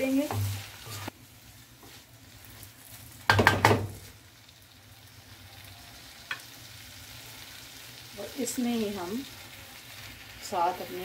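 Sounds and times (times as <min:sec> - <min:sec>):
spatula scraping pan: 0:00.0 - 0:01.1
food sizzling in a wok: 0:00.0 - 0:11.0.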